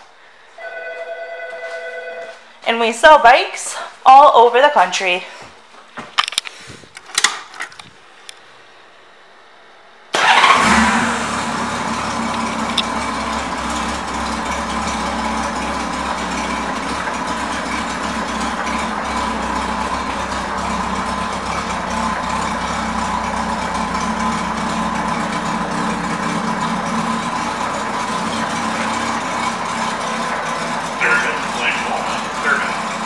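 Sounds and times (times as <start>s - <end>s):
motorcycle engine idling: 10.2s - 33.0s.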